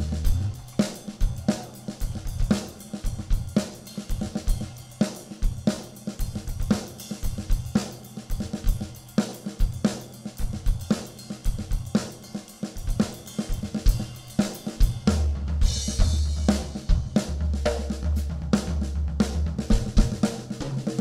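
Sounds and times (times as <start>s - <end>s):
low bass line: 0.0s - 0.6s
jazz drum kit groove: 0.0s - 21.0s.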